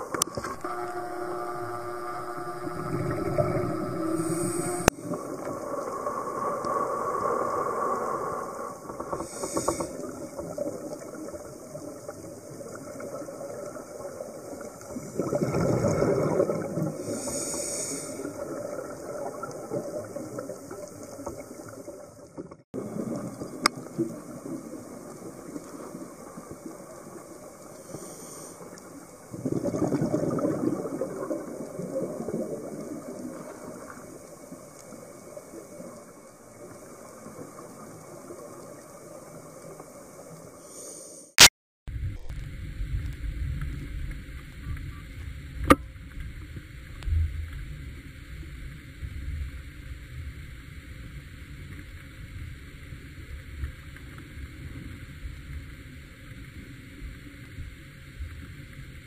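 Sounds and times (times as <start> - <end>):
steady underwater hiss: 0.0 - 59.0
regulator hissing inhales: 9.2 - 10.1, 17.0 - 18.3, 27.8 - 28.8, 40.6 - 41.4
exhaled bubbles rushing: 14.8 - 17.2, 29.3 - 34.0.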